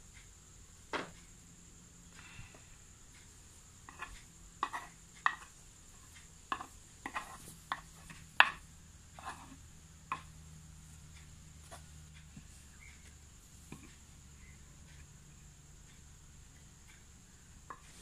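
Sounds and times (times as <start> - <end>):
metal spoon scraping in mortar: 6.5 - 8.2, 9.2 - 9.6.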